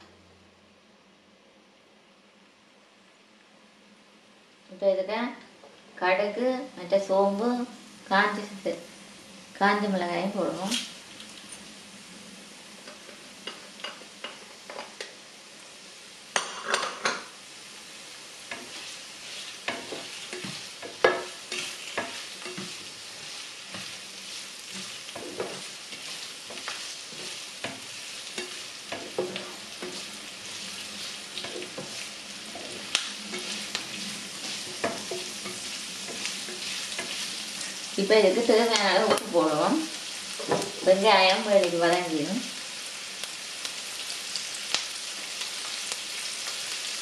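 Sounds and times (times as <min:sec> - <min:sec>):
onions frying in hot oil: 0:02.3 - 0:47.0
spatula scraping pan: 0:18.5 - 0:38.0.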